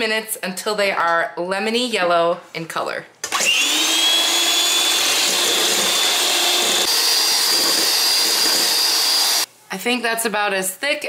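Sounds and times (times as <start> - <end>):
electric hand mixer whine: 3.3 - 9.5.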